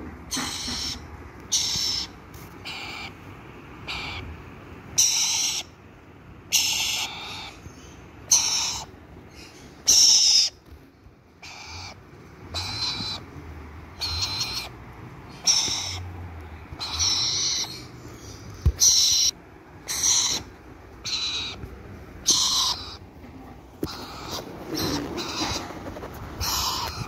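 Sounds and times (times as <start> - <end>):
parrots screechy calls: 0.3 - 3.2, 3.8 - 4.3, 4.9 - 5.8, 6.5 - 10.6, 11.4 - 13.3, 13.9 - 23.1, 23.8 - 27.0.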